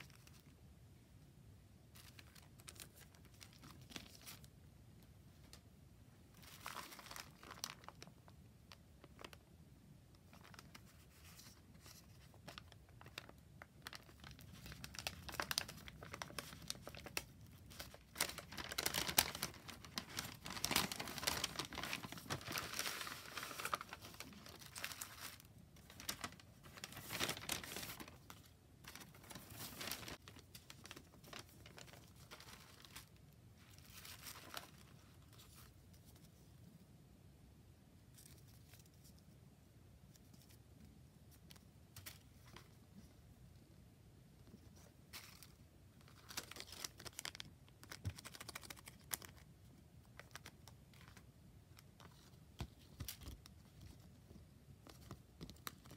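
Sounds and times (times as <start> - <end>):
paper crinkling and rustling: 1.9 - 4.5, 6.3 - 9.4, 10.2 - 36.5, 44.5 - 49.5, 50.1 - 55.9.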